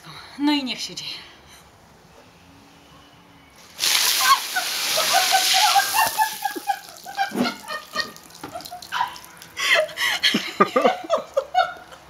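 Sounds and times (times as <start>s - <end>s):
water trickling and dripping: 3.6s - 10.0s
woman squealing and laughing: 4.1s - 10.4s.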